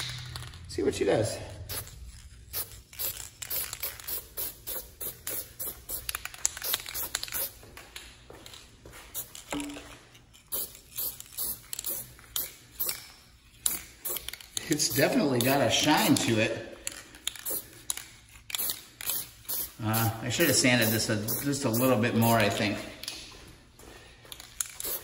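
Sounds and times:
aerosol spray paint hissing: 1.7s - 7.6s, 10.5s - 12.9s, 18.6s - 22.0s, 24.8s - 25.0s.

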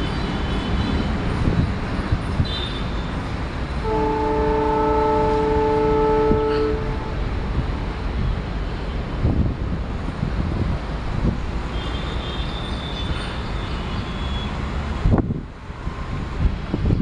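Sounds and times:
diesel locomotives rumbling: 0.0s - 17.0s
wind buffeting microphone: 0.8s - 2.6s, 5.2s - 11.7s, 14.9s - 17.0s.

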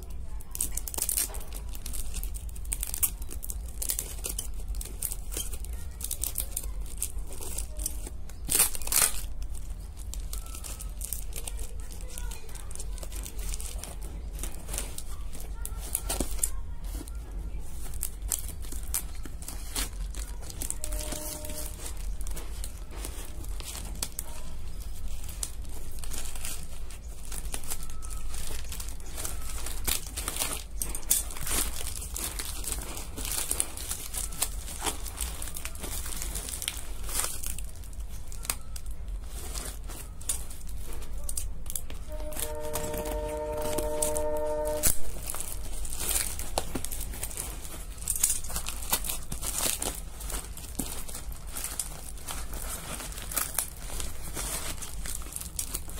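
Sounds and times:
plastic wrapping crinkling: 0.0s - 55.9s
steady pitched tone: 41.8s - 46.2s.

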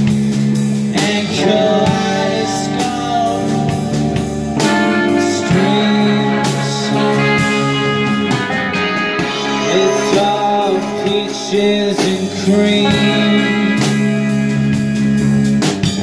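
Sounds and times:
bass guitar: 0.0s - 16.0s
drum kit: 0.0s - 16.0s
electric guitar: 0.0s - 16.0s
person singing: 0.9s - 14.4s.

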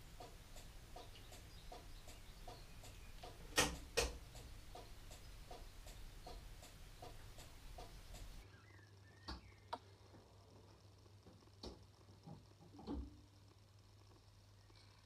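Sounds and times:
indicator relay ticking: 0.0s - 8.5s.

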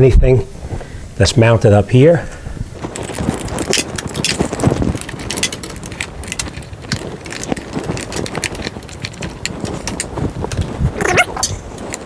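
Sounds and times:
rustling and scraping of cables: 2.5s - 12.0s.

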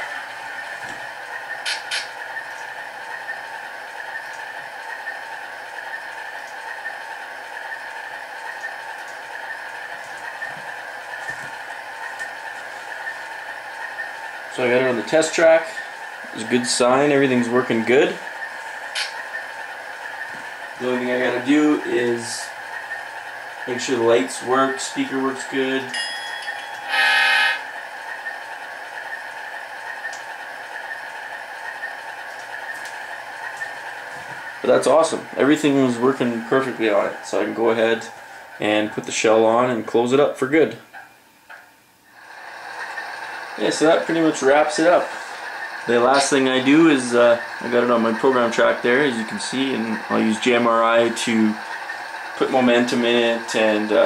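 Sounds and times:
locomotive engine sound from small speaker: 0.0s - 54.0s
brief speaker test tone: 26.8s - 27.6s.

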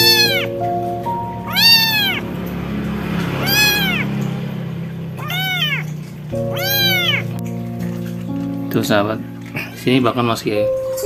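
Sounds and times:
kitten meowing: 0.0s - 0.7s, 1.4s - 2.3s, 3.4s - 4.2s, 5.2s - 7.4s.

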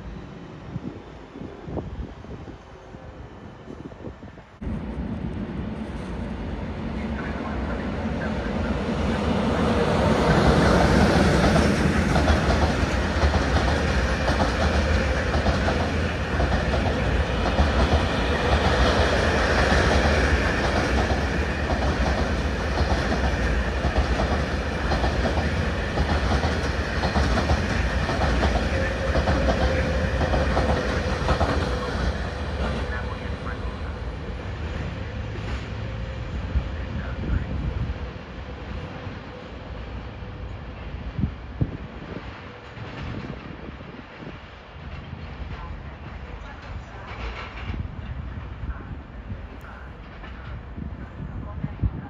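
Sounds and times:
freight train wheels clattering: 9.2s - 33.1s.

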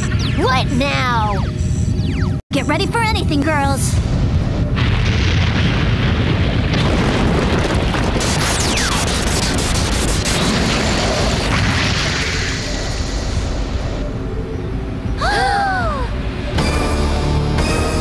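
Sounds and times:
cartoon explosion blast: 4.7s - 13.7s.

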